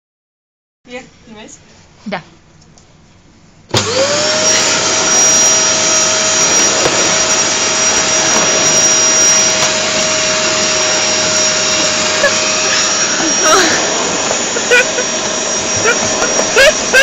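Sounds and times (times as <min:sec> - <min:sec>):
vacuum cleaner running: 0:03.7 - 0:17.0.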